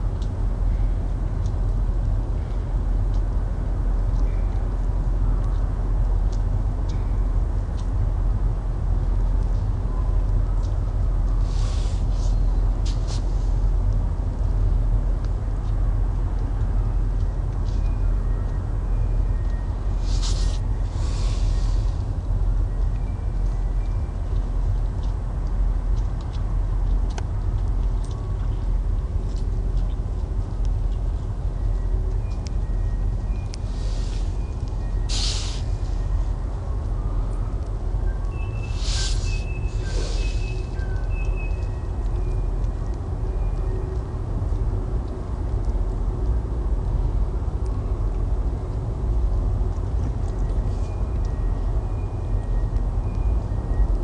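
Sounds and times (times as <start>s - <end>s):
light ticks: 0.2s - 0.4s, 1.1s - 3.4s, 4.0s - 7.1s, 7.7s - 8.0s, 13.8s - 18.6s, 22.1s - 34.9s, 40.6s - 54.0s
boat diesel engine rumble: 4.9s - 54.0s.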